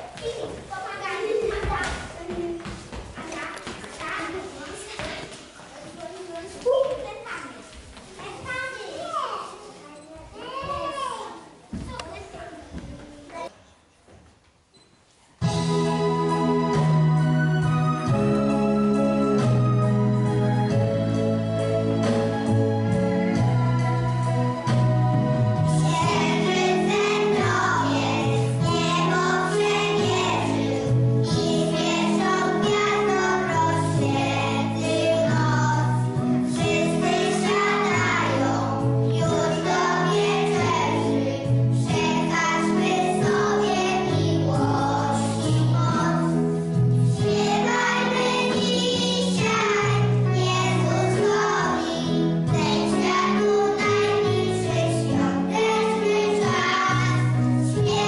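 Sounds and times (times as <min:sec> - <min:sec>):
instrumental accompaniment: 0:15.4 - 0:58.0
children singing: 0:25.5 - 0:58.0.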